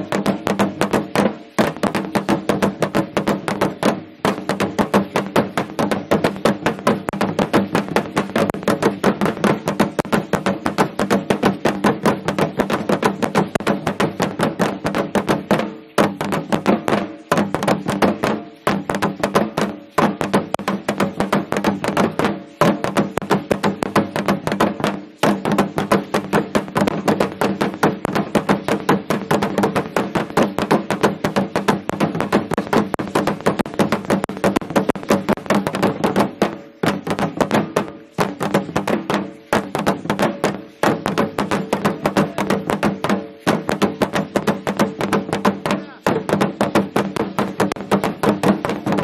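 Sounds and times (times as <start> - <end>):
fast steady drumming: 0.0 - 49.0.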